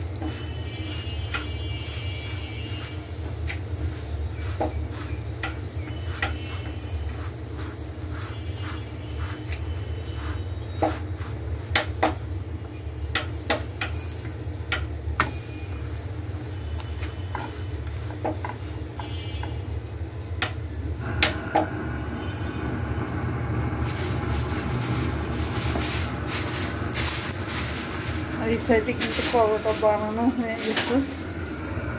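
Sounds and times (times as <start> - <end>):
flatbread sizzling in a pan: 0.0 - 21.3, 22.0 - 31.5
spatula tapping and scraping pan: 1.2 - 7.2, 16.9 - 19.6.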